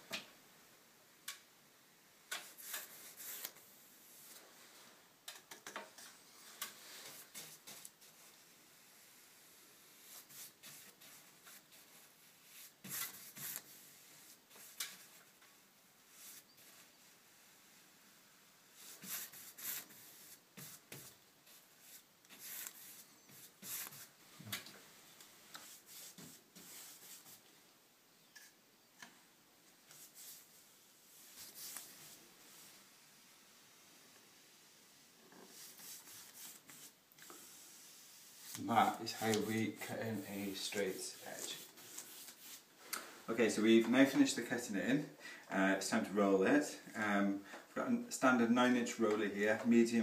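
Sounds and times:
paintbrush swishing on wall: 0:02.4 - 0:05.0, 0:06.3 - 0:27.5, 0:29.8 - 0:43.2.

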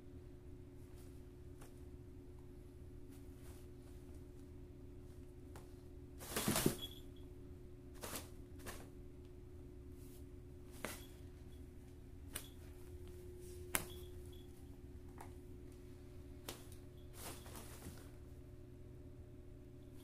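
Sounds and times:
low hum: 0:00.0 - 0:20.0
soft fabric rustle: 0:15.8 - 0:18.3.

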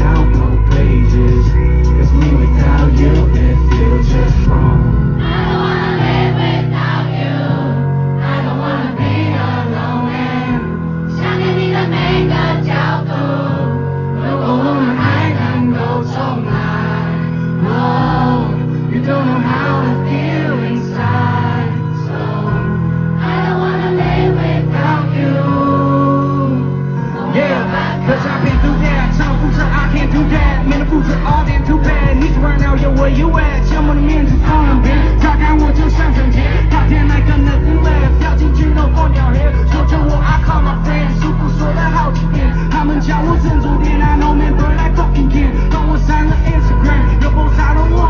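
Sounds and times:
man singing pop song through pa: 0:00.0 - 0:05.8, 0:14.1 - 0:22.5, 0:24.3 - 0:48.0
crowd singing along: 0:00.0 - 0:48.0.

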